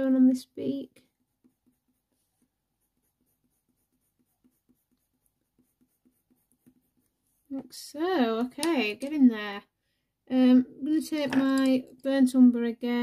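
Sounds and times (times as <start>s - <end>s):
pencil scratching on paper: 0.1s - 7.6s.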